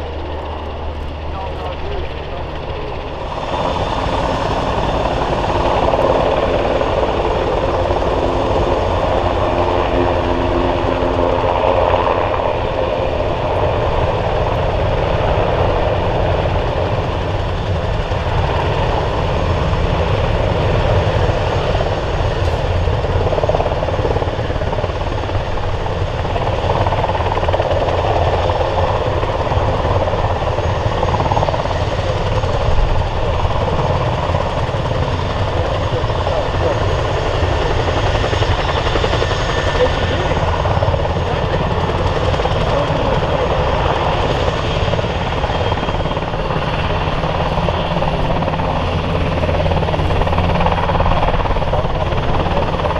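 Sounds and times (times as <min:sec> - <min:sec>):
steady pitched tones: 0:00.0 - 0:14.8
helicopter rotor beating: 0:00.0 - 0:52.9
turbine noise: 0:00.0 - 0:52.9.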